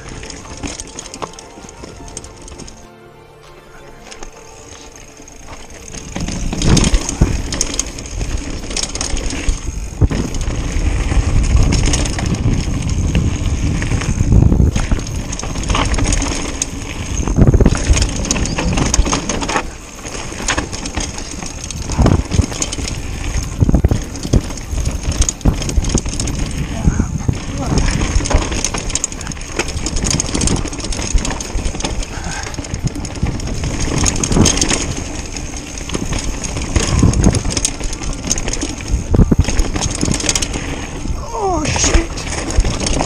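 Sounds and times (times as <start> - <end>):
bike knocks and rattles: 0.0 - 2.7, 5.4 - 43.0
bike tyres rumbling on gravel: 0.0 - 2.9, 3.8 - 43.0
wind buffeting microphone: 5.9 - 43.0.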